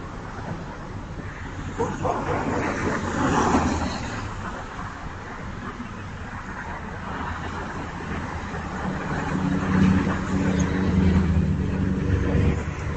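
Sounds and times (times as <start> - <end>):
cars passing: 0.0 - 12.9.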